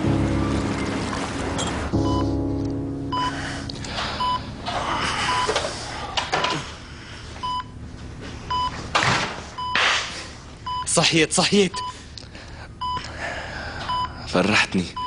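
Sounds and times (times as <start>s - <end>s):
monitor beeping: 1.6s - 6.8s, 7.4s - 7.8s, 8.5s - 8.8s.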